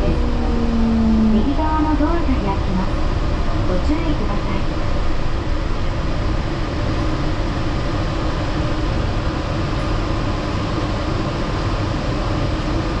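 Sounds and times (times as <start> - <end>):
train running low rumble: 0.0 - 13.0.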